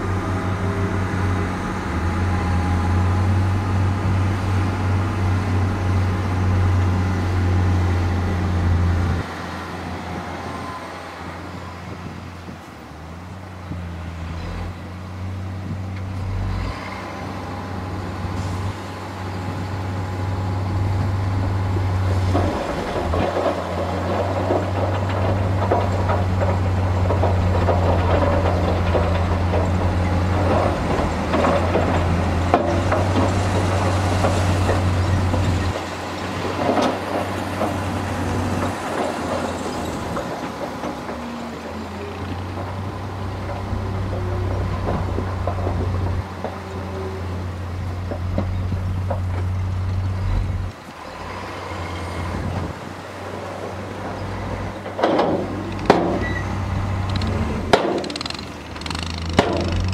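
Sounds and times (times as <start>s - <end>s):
diesel truck engine drone: 0.0s - 59.9s
gritty rattling: 55.0s - 59.9s.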